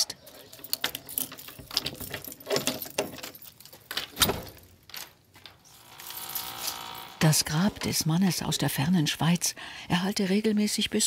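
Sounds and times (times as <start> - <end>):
keys jangling: 0.2 - 5.1, 5.9 - 7.0.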